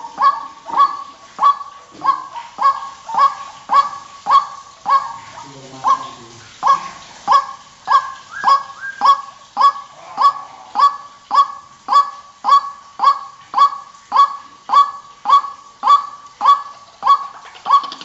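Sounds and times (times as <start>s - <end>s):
waterhen calling: 0.0s - 18.0s.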